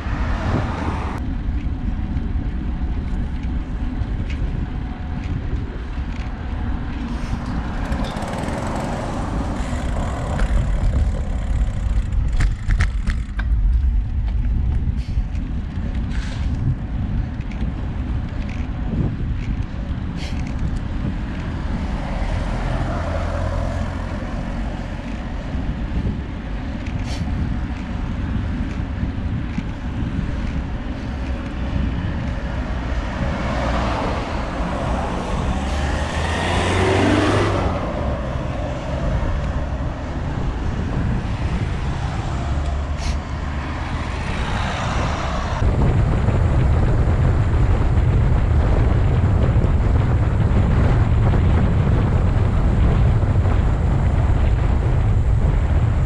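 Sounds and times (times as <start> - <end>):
car passing: 0.0 - 1.2, 7.0 - 15.5, 20.3 - 28.7, 29.4 - 56.0
wind rushing over microphone: 0.0 - 56.0.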